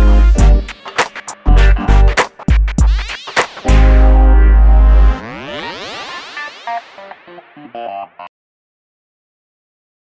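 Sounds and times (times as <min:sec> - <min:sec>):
deep sustained bass note: 0:03.7 - 0:05.2
sweeping synth glide: 0:03.7 - 0:07.1.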